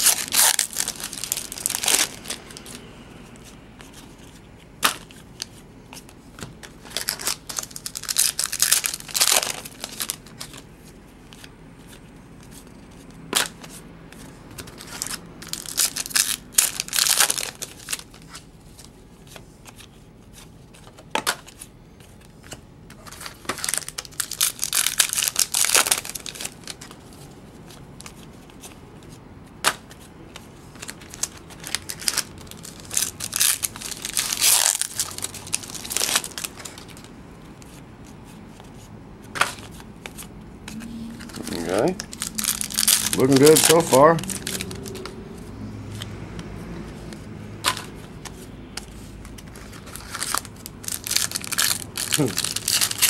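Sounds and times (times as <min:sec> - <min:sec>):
foil wrappers crinkling and tearing: 0:00.0 - 0:02.7, 0:06.8 - 0:10.6, 0:14.6 - 0:18.4, 0:22.9 - 0:27.0, 0:30.7 - 0:37.7, 0:41.2 - 0:45.1, 0:49.3 - 0:53.0
cards rustling: 0:00.0 - 0:53.0.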